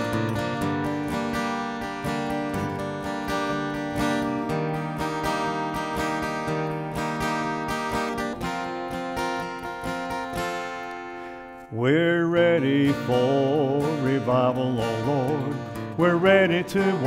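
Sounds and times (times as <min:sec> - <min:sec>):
acoustic guitar strumming: 0:00.0 - 0:17.0
gospel singing: 0:11.7 - 0:17.0.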